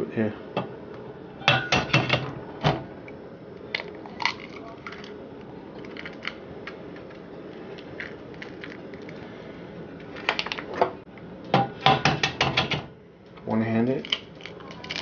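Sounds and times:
faint steady background noise: 0.0s - 15.0s
eggshells cracked on ceramic bowl: 3.7s - 5.2s, 14.0s - 15.0s.

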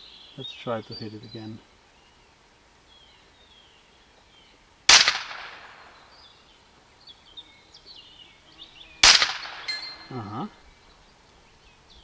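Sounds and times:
birds chirping faintly: 0.0s - 4.9s, 5.5s - 12.0s
air pistol shot: 4.9s - 5.9s, 9.0s - 9.7s.

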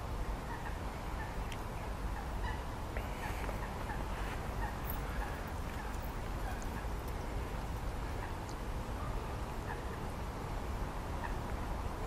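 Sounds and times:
waterfowl calling: 2.1s - 7.1s.

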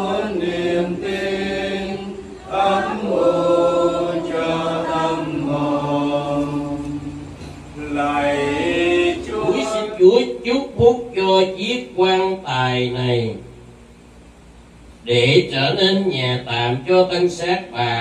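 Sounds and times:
congregation singing in unison: 0.0s - 10.8s.

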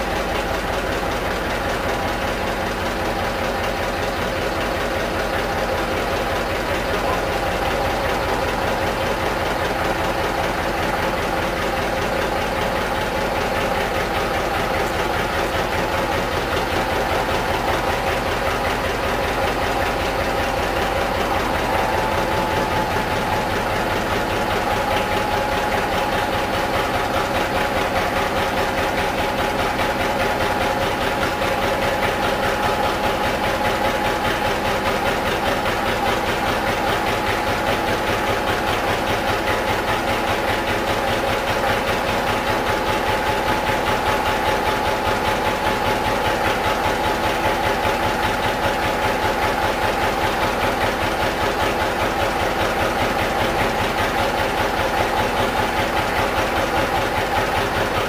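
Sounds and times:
slow diesel engine beating: 0.0s - 58.0s.

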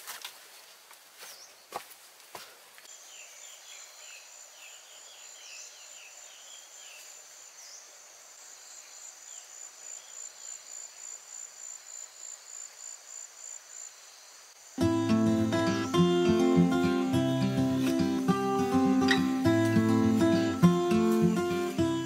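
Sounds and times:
insects trilling: 2.9s - 22.0s
bird-like chirps: 17.8s - 22.0s.

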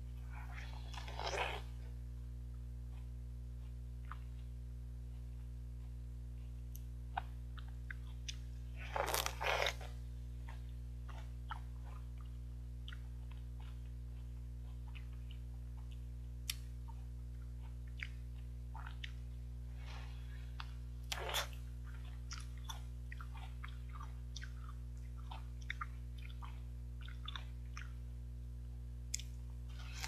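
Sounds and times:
steady low hum: 0.0s - 30.0s
chewing with wet mouth clicks: 2.9s - 6.0s, 10.4s - 19.4s, 20.6s - 28.0s, 29.1s - 29.4s
crunchy bite into melon: 8.8s - 10.0s.

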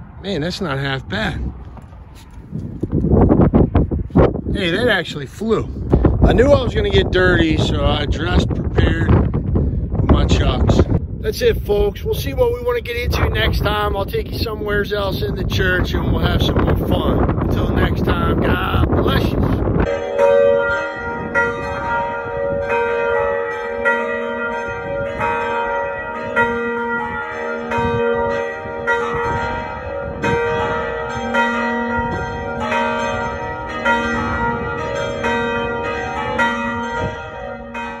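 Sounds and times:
church bells ringing: 15.8s - 38.0s.

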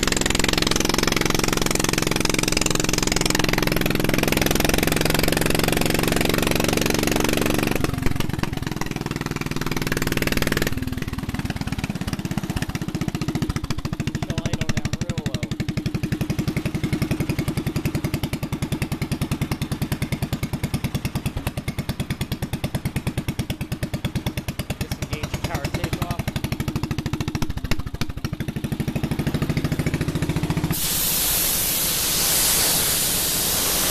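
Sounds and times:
single-cylinder engine running: 0.0s - 33.9s
loud air hiss: 30.7s - 33.9s.

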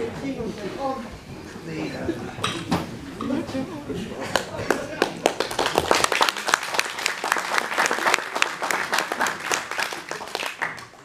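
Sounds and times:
audience applauding: 4.3s - 11.0s.

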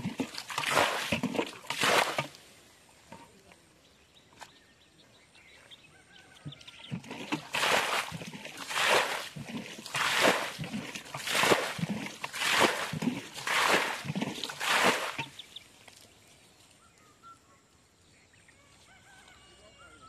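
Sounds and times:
water splashing in muddy puddle: 0.0s - 2.6s, 6.4s - 16.1s.

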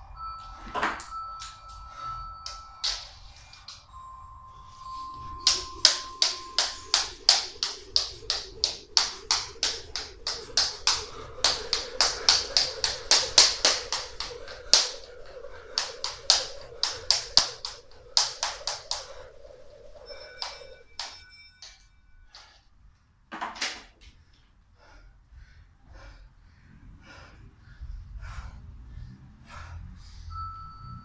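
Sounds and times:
electronic timer beeps: 0.1s - 13.0s, 16.2s - 22.0s, 30.3s - 31.0s
jump rope slapping wooden floor: 5.4s - 19.2s.

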